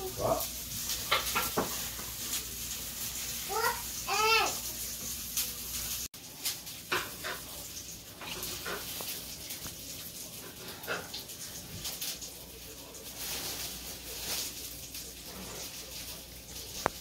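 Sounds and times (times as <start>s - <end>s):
baby vocal sounds: 3.4s - 4.6s.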